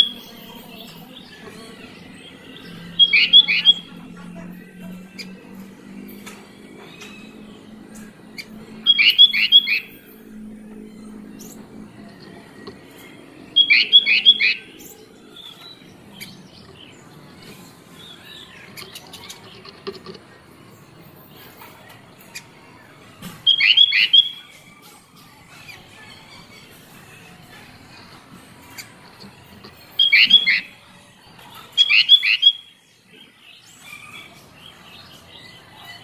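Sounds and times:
bird singing clear notes: 0:00.0 - 0:05.4, 0:06.3 - 0:17.3, 0:23.4 - 0:24.7, 0:29.8 - 0:30.8, 0:31.7 - 0:33.3
bird chirps: 0:00.0 - 0:19.7, 0:20.7 - 0:36.0.

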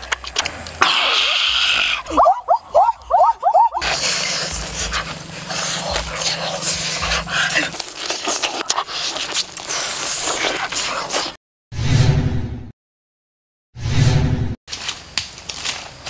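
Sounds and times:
close mouth noises: 0:00.8 - 0:11.4
crunching and chewing: 0:03.8 - 0:11.4.

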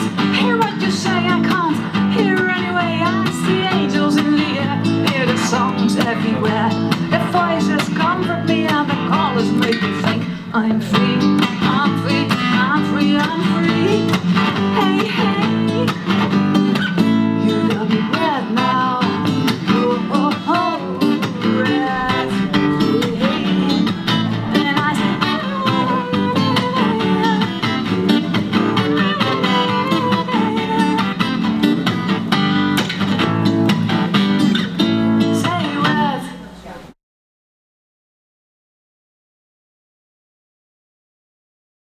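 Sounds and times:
acoustic guitar strumming: 0:00.0 - 0:36.5
sliding melody line: 0:17.5 - 0:31.4
electric bass: 0:18.9 - 0:34.8.

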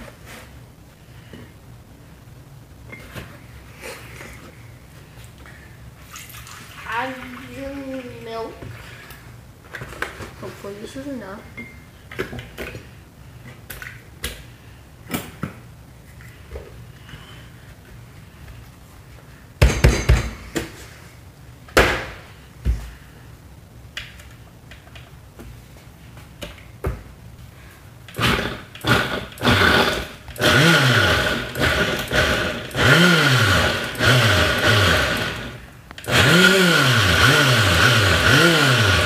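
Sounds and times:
blender motor running: 0:28.1 - 0:39.0.

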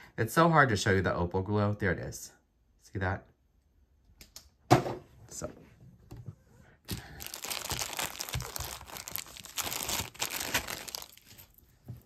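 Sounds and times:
packaging crinkling: 0:06.9 - 0:11.7.

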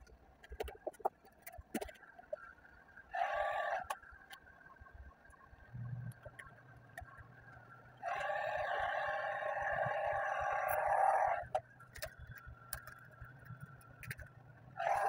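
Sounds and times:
light taps and crinkles of vinyl film: 0:11.4 - 0:14.3.

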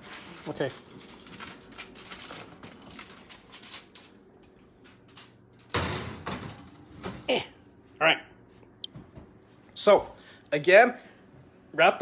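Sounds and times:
aluminum foil crinkling: 0:00.0 - 0:05.4.

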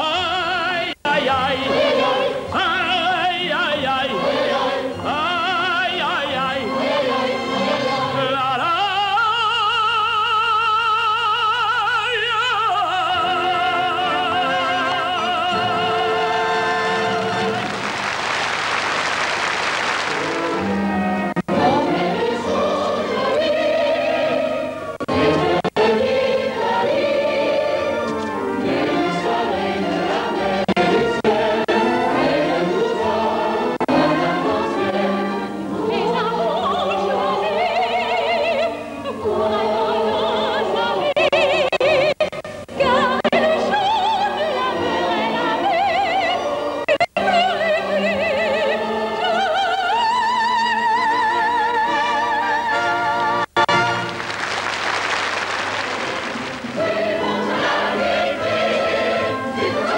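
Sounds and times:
chorus and soloists singing: 0:00.0 - 0:18.0, 0:19.8 - 0:54.0, 0:55.6 - 0:59.9.

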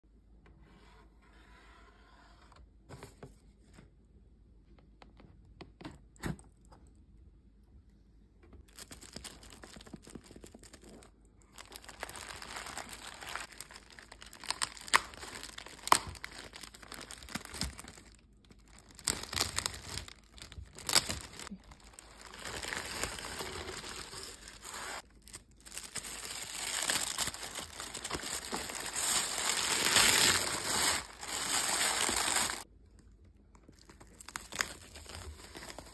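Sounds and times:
plastic and tissue paper crinkling: 0:08.6 - 0:32.7, 0:33.7 - 0:35.9.

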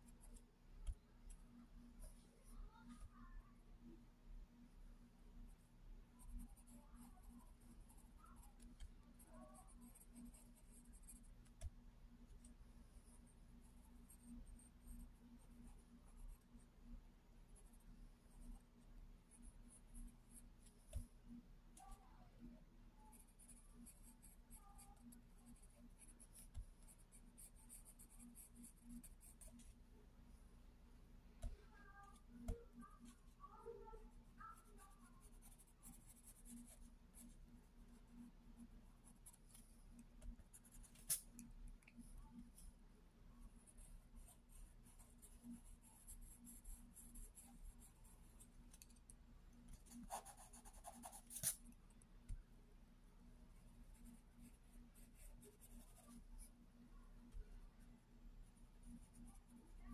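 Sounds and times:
pencil scratching on paper: 0:06.2 - 0:16.8, 0:17.6 - 0:21.1, 0:21.8 - 0:29.8, 0:31.4 - 0:42.7, 0:43.5 - 0:49.0, 0:49.7 - 0:51.7, 0:53.9 - 0:56.6, 0:58.8 - 0:59.9.

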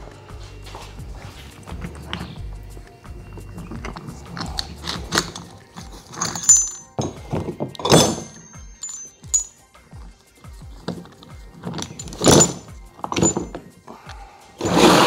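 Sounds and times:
metal parts clinking: 0:03.4 - 0:09.6, 0:10.8 - 0:13.8
loud metal clank: 0:06.2 - 0:09.5.

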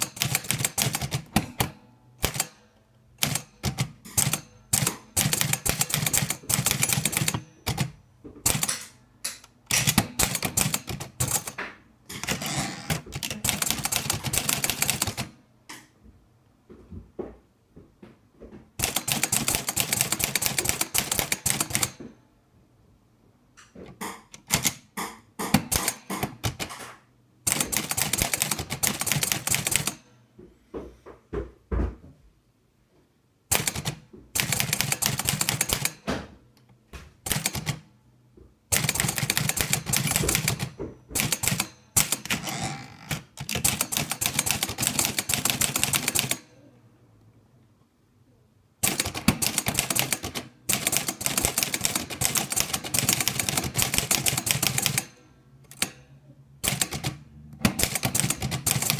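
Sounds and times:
manual typewriter typing: 0:00.0 - 0:15.4, 0:18.8 - 0:22.0, 0:23.9 - 0:30.1, 0:33.5 - 0:36.1, 0:37.2 - 0:37.8, 0:38.7 - 0:46.6, 0:48.8 - 0:58.9.

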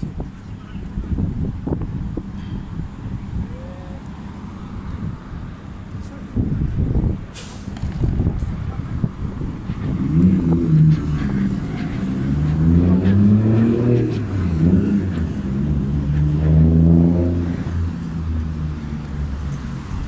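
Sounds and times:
vehicle engine accelerating: 0:04.2 - 0:20.0.

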